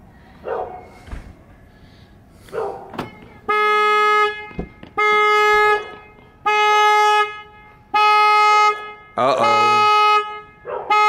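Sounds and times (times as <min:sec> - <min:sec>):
car alarm horn blasts: 0:02.9 - 0:11.0.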